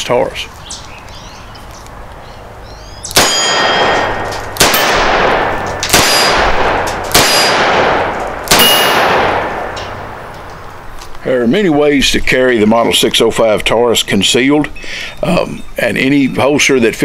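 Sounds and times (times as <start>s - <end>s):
revolver gunshots with ringing: 3.1s - 10.9s.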